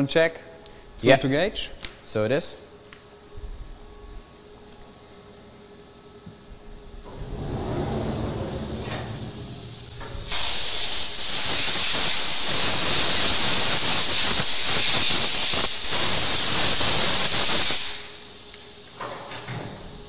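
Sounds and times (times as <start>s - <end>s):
compressed air blow gun hissing: 7.1s - 19.0s.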